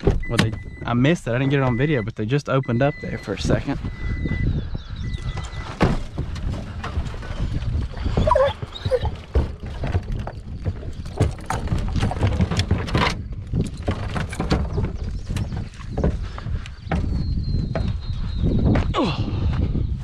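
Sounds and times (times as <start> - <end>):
truck rumbling over gravel: 5.2 - 15.5
dog box rattling: 5.3 - 16.1
stones knocking: 5.8 - 17.2
dog crying: 8.0 - 9.3.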